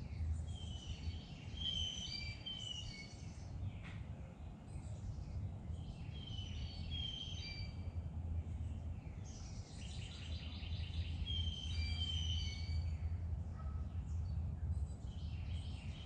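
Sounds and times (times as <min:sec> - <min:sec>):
songbirds singing: 0:00.0 - 0:16.0.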